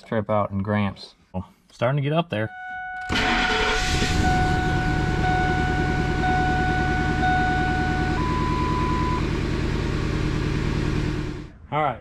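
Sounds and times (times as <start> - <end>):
dashboard chime beeps: 2.4 - 3.1, 4.1 - 9.2
truck engine idling: 3.1 - 11.5.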